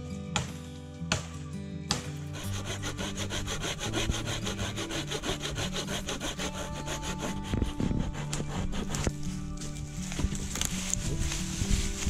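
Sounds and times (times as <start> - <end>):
hand saw cutting wood: 2.4 - 9.8.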